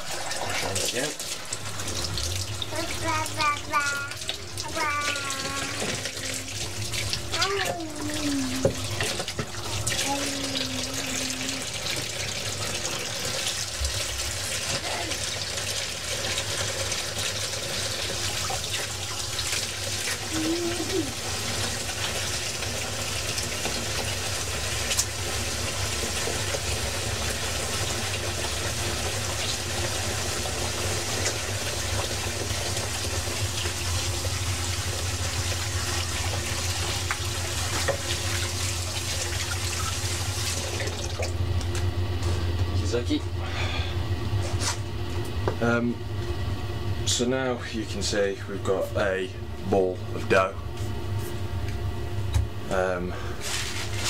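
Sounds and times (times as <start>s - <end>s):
kitchen tap running into sink: 0.0s - 41.7s.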